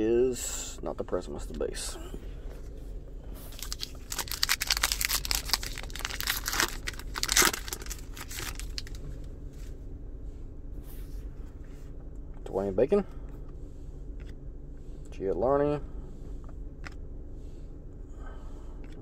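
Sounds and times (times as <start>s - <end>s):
foil wrapper tearing and crinkling: 3.5s - 9.0s.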